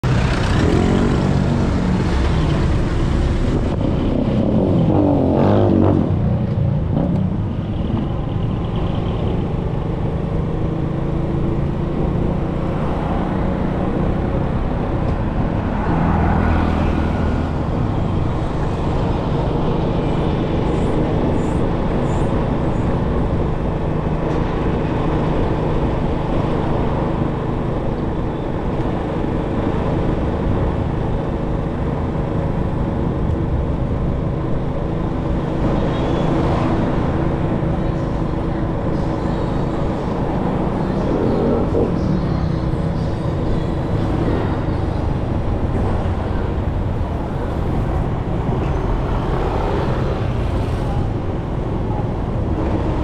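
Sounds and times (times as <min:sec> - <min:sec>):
city road traffic: 0:00.0 - 0:53.0
vehicle engine running: 0:00.0 - 0:53.0.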